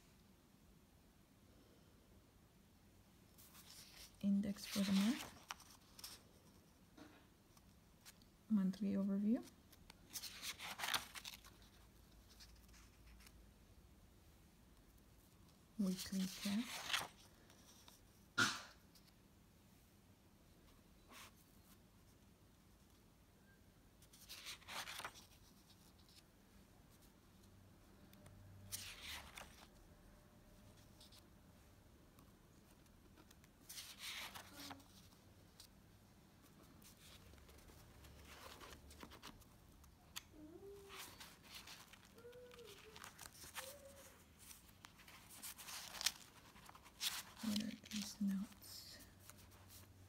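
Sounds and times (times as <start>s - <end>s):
faint paper brushing: 3.3s - 6.8s, 15.8s - 18.2s, 24.0s - 26.3s, 28.7s - 29.8s, 32.2s - 35.8s, 36.4s - 39.8s, 40.6s - 50.0s
paper page rustling: 3.4s - 6.8s, 9.7s - 13.4s, 15.8s - 18.1s, 24.0s - 26.2s, 28.7s - 29.8s, 30.6s - 31.3s, 32.2s - 35.7s, 36.4s - 49.9s.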